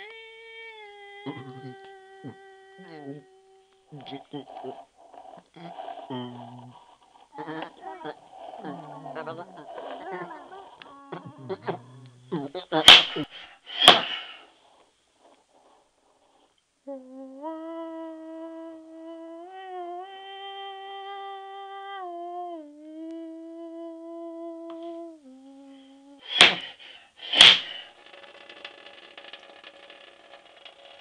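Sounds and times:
person humming: 0.0s - 14.3s, 16.8s - 27.8s
loud sharp whacks: 12.8s - 14.4s, 26.3s - 27.8s.

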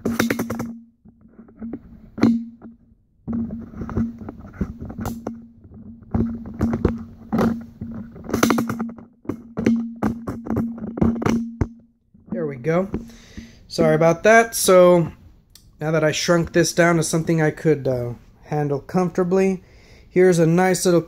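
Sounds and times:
tripod legs clanging and clicking: 0.0s - 13.2s.

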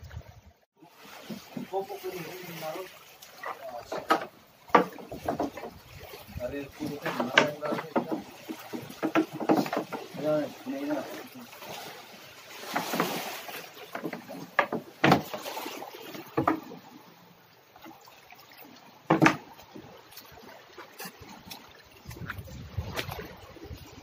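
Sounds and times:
water splashing around boat: 0.0s - 24.0s
sharp knocks: 19.1s - 19.4s.

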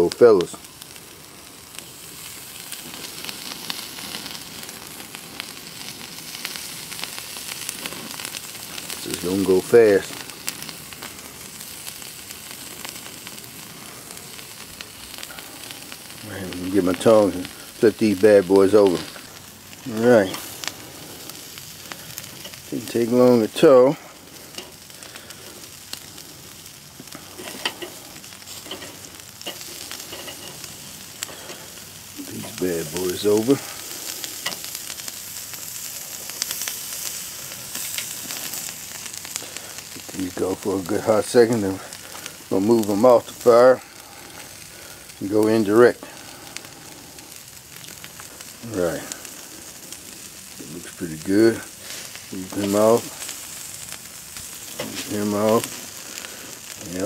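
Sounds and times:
shrimp sizzling on a grill: 0.0s - 57.0s
small pops and crackles: 0.0s - 57.0s
tongs clicking against grill grate: 27.3s - 31.6s.

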